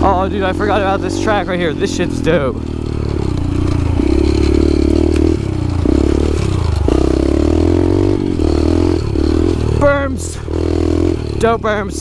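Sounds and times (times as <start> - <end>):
dirt bike engine revving: 0.0 - 12.0
bike clattering over rough ground: 2.7 - 7.1.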